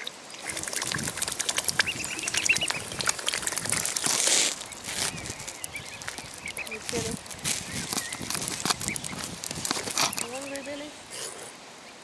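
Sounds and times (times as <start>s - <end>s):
small splashes and bill clicks: 0.0s - 10.8s.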